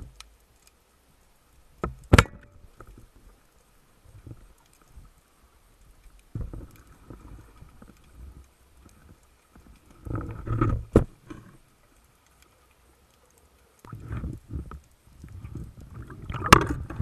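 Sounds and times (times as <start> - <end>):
muffled underwater knocks: 16.3 - 17.0.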